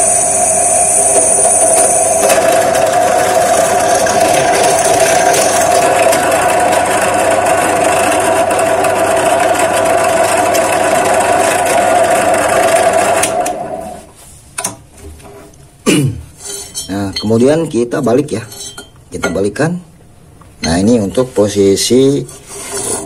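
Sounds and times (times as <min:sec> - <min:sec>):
drill press cutting steel: 0:00.0 - 0:14.0.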